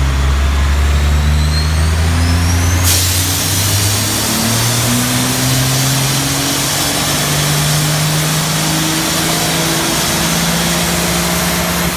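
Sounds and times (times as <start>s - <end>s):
diesel engine running: 0.0s - 11.9s
pressurized spray hissing: 2.8s - 11.9s.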